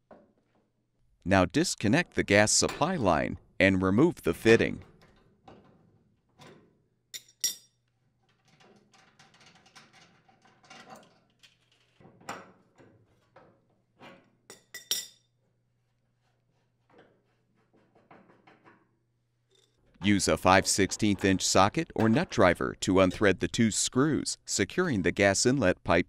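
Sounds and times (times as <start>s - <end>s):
metal tools clinking on fitting: 7.2s - 7.8s.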